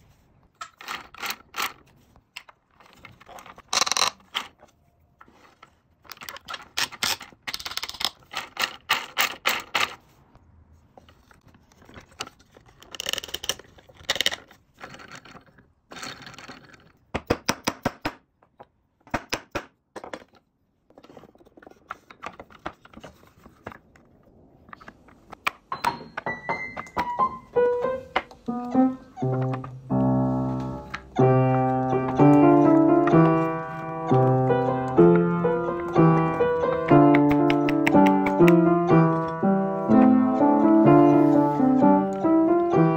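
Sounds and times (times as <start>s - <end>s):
wooden toy parts knocking and clicking: 0.5s - 10.0s, 11.0s - 27.4s, 28.1s - 29.9s, 30.5s - 40.2s
piano music: 25.6s - 42.9s.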